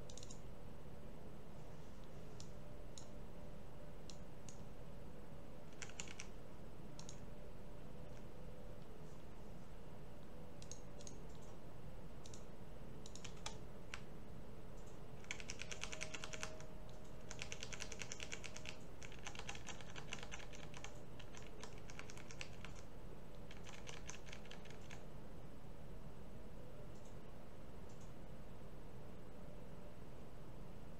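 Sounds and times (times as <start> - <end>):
keyboard typing: 0.0 - 0.5, 5.7 - 7.3, 10.6 - 11.6, 12.2 - 14.1, 14.8 - 25.0
low background hiss: 0.0 - 30.9.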